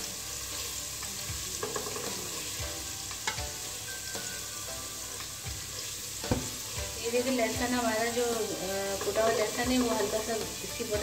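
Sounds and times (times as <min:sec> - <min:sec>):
garlic sizzling in oil: 0:00.0 - 0:11.0
spatula scraping and tapping pan: 0:01.0 - 0:07.7, 0:08.8 - 0:10.6.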